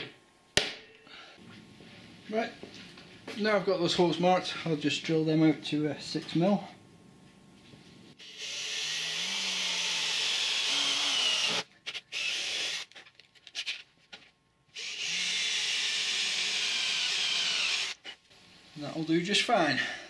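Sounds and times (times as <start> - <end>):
cordless drill boring through metal: 8.2 - 13.0, 14.8 - 18.0.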